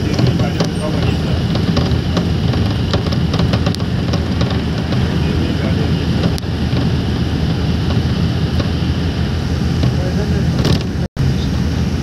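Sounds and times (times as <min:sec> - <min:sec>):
light rattles: 0:00.0 - 0:09.0
vehicle engine and road noise: 0:00.0 - 0:12.0.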